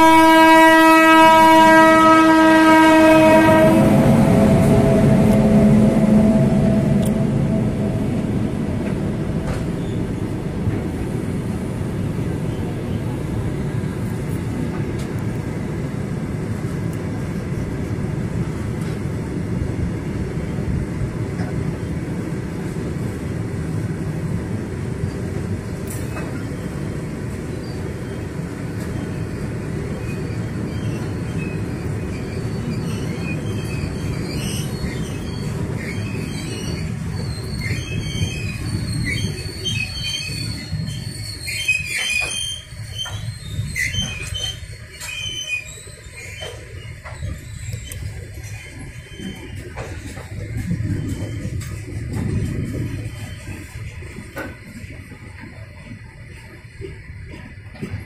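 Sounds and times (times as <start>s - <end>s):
train wheels rumbling on rails: 0.0s - 58.0s
high-pitched squeaks: 30.1s - 54.6s.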